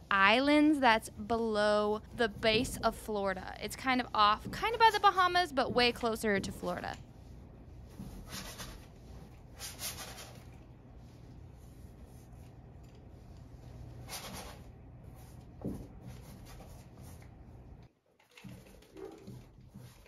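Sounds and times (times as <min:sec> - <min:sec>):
low steady hum: 0:00.0 - 0:17.9
paintbrush swishing on canvas: 0:06.7 - 0:17.5.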